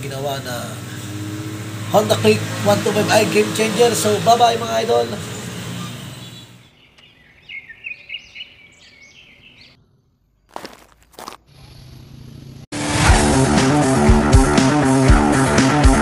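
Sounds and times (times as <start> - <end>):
birds chirping: 0.0 - 12.6
crunching footsteps: 10.4 - 11.5
rock music with electric guitar: 12.8 - 16.0.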